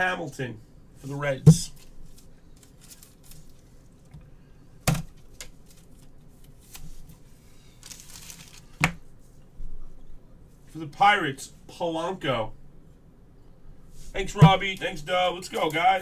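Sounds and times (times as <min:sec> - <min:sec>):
cards rustling: 0:01.7 - 0:04.1, 0:07.8 - 0:09.0
packaging crinkle: 0:02.0 - 0:04.1, 0:07.8 - 0:08.9.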